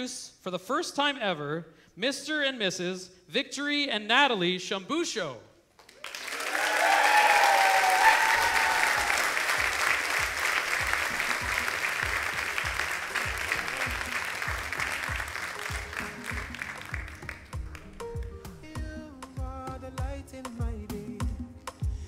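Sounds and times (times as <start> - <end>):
congregation applauding: 5.8 - 18.6
music with steady low beat: 9.6 - 22.0.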